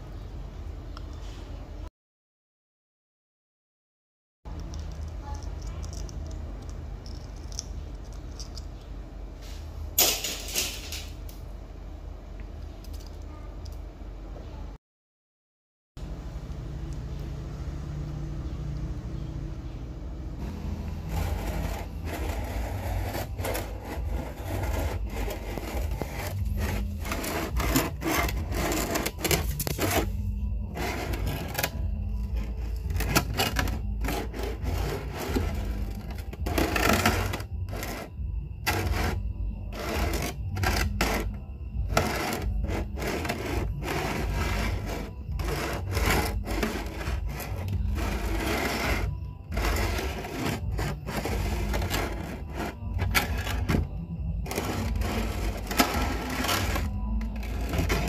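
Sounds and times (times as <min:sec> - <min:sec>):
steady low hum: 0:16.0 - 0:58.0
dental instrument scraping tooth: 0:20.6 - 0:58.0.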